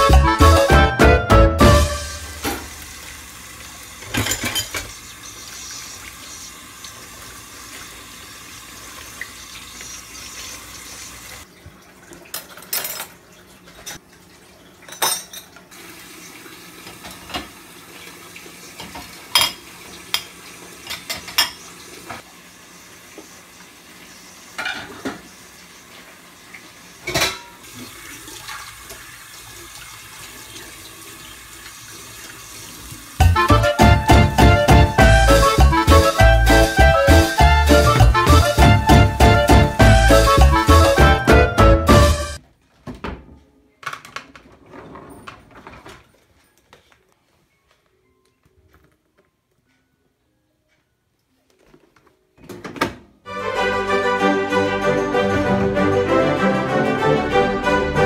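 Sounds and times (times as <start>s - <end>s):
dishes clinking and knocking: 2.4s - 2.7s, 4.0s - 5.0s, 14.9s - 15.5s, 18.8s - 19.6s, 20.9s - 21.6s, 24.6s - 25.2s, 27.0s - 27.6s
tap running: 32.9s - 41.4s.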